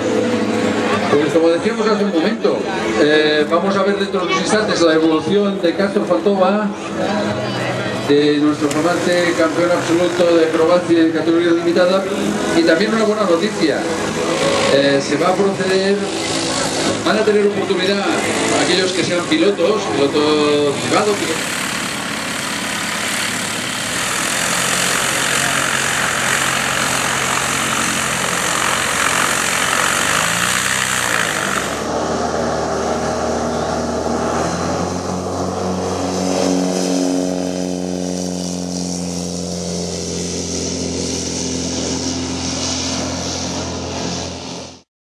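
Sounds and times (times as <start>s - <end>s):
biplane engine and propeller: 0.0s - 44.9s.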